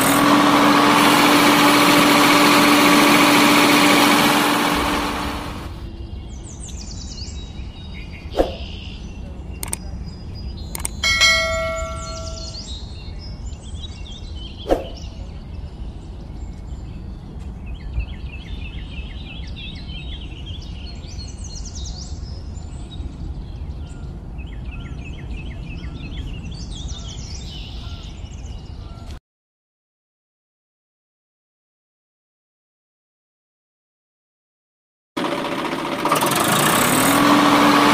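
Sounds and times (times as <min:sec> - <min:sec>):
birds chirping: 0:04.7 - 0:29.2
sharp clicks: 0:09.6 - 0:09.8, 0:10.7 - 0:11.0
bell-like ring: 0:11.0 - 0:12.7.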